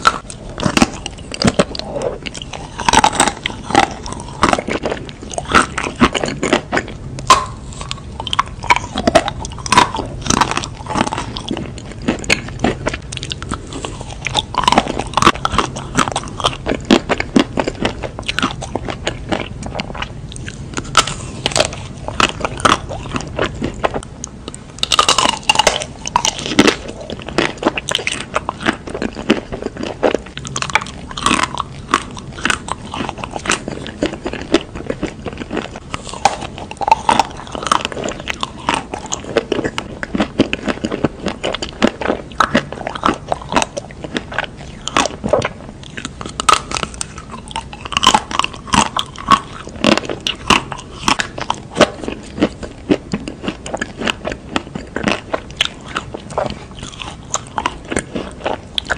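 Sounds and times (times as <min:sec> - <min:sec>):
chocolate coating crunching: 0:00.0 - 0:58.9.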